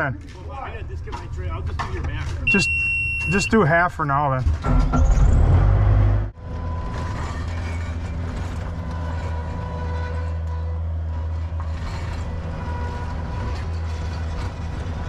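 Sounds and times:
diesel engine running: 0.0 - 15.0
thin engine whine: 5.1 - 15.0.

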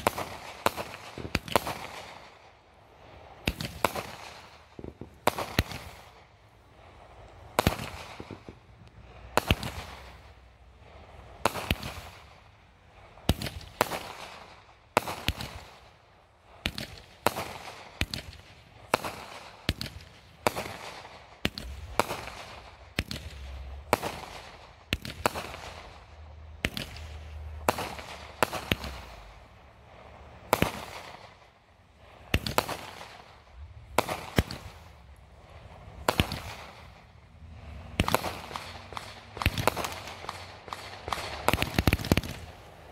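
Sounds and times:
aerial fireworks bangs: 7.6 - 8.7, 16.6 - 26.0, 26.6 - 29.3, 30.5 - 31.4, 32.2 - 35.0, 36.0 - 37.1, 37.7 - 42.6.

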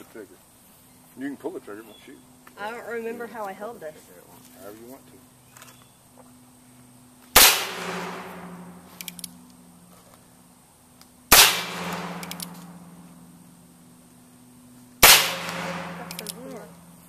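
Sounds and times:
revolver shots echoing: 7.4 - 8.8, 11.3 - 13.0, 15.0 - 16.7
revolver hammer cocking clicks: 9.0 - 9.4, 11.9 - 12.7, 15.4 - 16.5.

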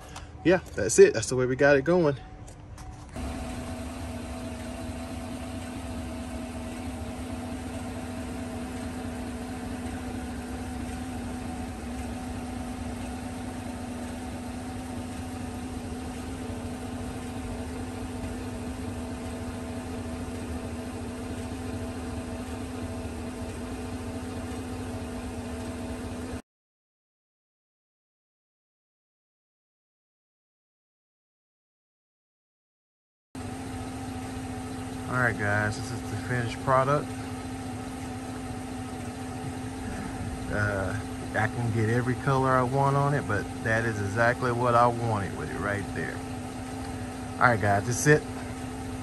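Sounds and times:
pickup truck engine idling: 2.9 - 26.4, 33.4 - 49.0.

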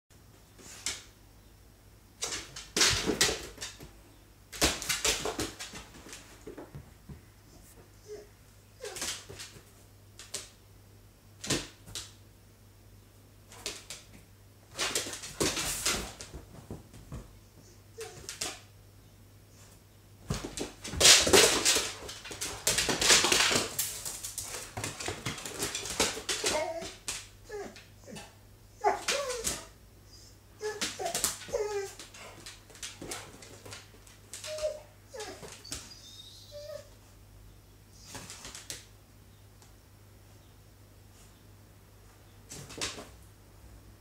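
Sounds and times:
animals scuffling and thumping: 20.2 - 27.2
paws scrabbling on wooden floor: 20.2 - 27.8, 30.6 - 35.9.

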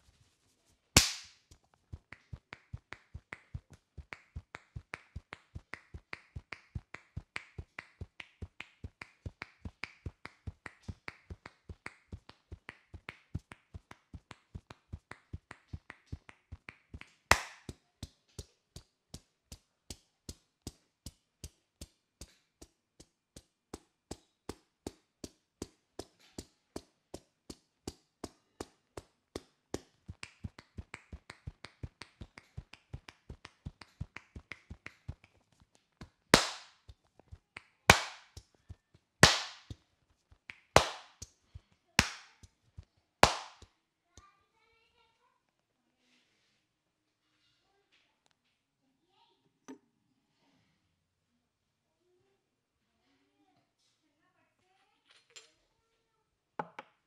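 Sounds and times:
hair snapping between fingers: 1.0 - 1.4, 17.3 - 17.7, 36.4 - 36.8, 43.2 - 43.7.

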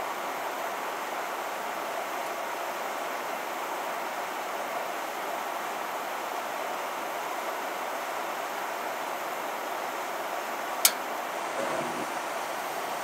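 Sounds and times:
furnace air rushing: 11.4 - 13.0.

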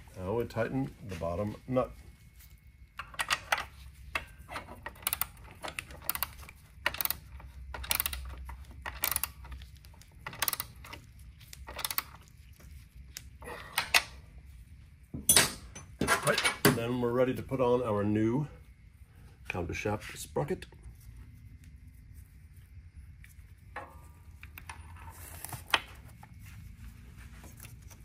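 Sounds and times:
ratchet wrench clicking: 4.2 - 9.5, 10.2 - 10.9, 11.7 - 12.1.

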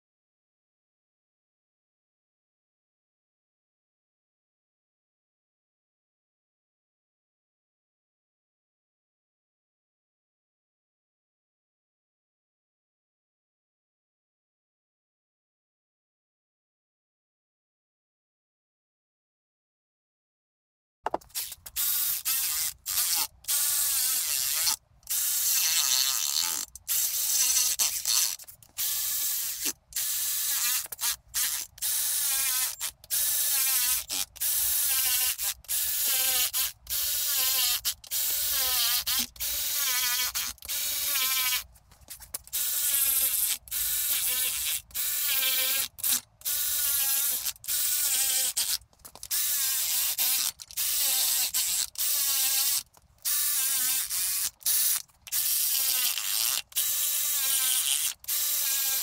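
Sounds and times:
electric ratchet whine: 21.3 - 41.6.

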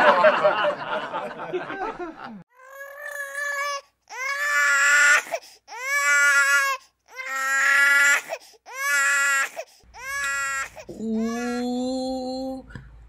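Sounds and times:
infant crying: 2.5 - 11.7.

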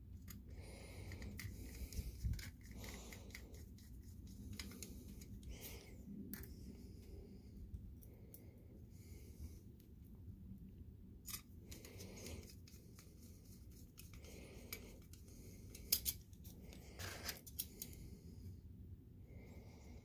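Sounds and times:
screwdriver clicking and scraping metal: 1.0 - 5.4, 11.3 - 18.0.

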